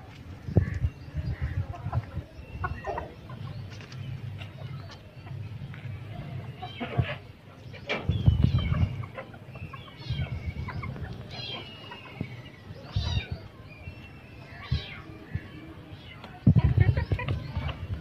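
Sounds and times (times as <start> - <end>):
chickens clucking: 0.1 - 18.0
low rumbles on microphone: 7.8 - 9.2, 9.9 - 15.8, 16.4 - 18.0.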